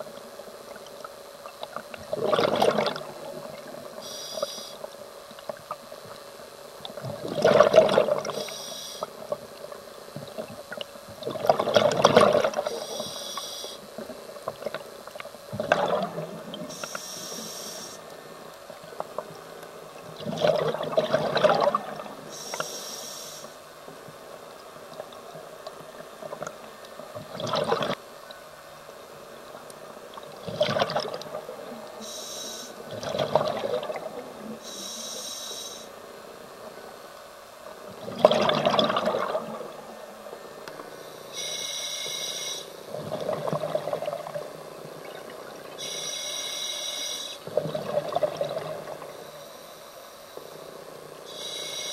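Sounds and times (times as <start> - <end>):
exhaled bubbles gurgling: 0.7 - 4.0, 6.9 - 8.5, 10.2 - 13.1, 14.4 - 16.9, 19.9 - 22.6, 26.2 - 28.0, 30.1 - 32.1, 32.8 - 34.6, 37.9 - 40.0, 42.8 - 46.0, 47.4 - 49.3
regulator inhale hiss: 4.0 - 4.9, 8.3 - 9.3, 12.7 - 14.0, 16.7 - 18.2, 22.3 - 23.7, 32.0 - 32.8, 34.6 - 36.0, 40.9 - 42.9, 45.8 - 47.5, 49.1 - 51.9.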